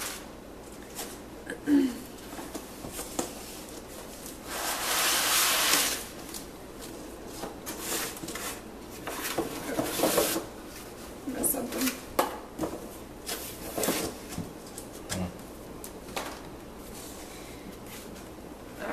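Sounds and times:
cardboard scraping slide: 0:04.5 - 0:06.1.

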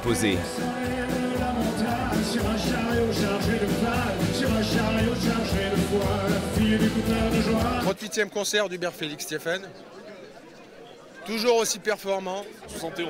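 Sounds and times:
man singing into microphone: 0:00.0 - 0:08.0
rock band playing live: 0:00.5 - 0:07.9.

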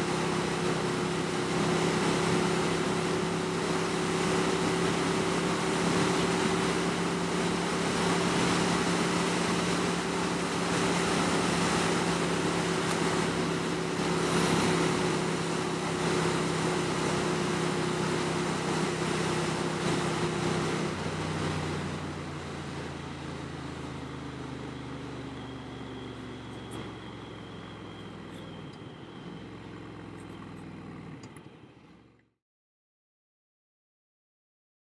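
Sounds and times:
wind and road noise: 0:00.0 - 0:32.2
motorcycle engine humming: 0:00.0 - 0:32.3.

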